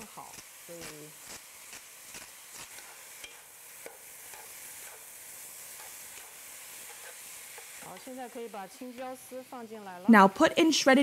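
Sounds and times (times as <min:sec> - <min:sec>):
potatoes sizzling in oil: 0:00.0 - 0:11.0
utensils clicking and scraping: 0:00.3 - 0:05.0, 0:05.7 - 0:08.4.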